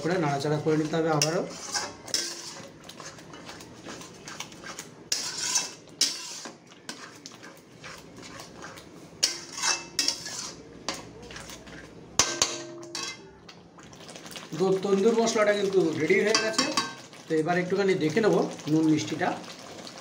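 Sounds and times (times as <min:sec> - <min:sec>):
metal spatula scraping a pan: 0:00.0 - 0:13.3.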